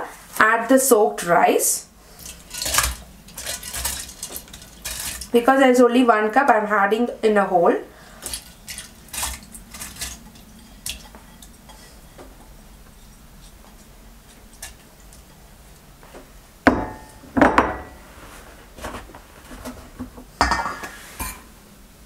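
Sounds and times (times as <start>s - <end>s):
metal jar clanking: 2.2s - 5.3s
dishes clattering: 16.7s - 18.0s, 19.6s - 21.5s.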